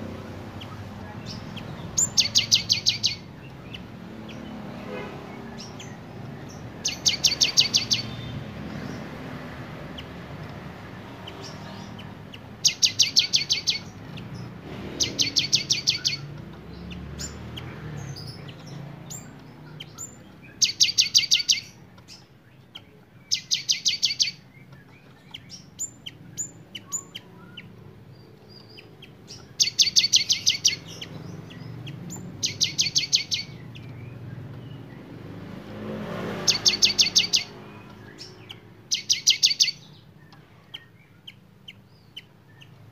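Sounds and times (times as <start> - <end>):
single bird chirps: 12.6 - 16.3, 36.4 - 42.8.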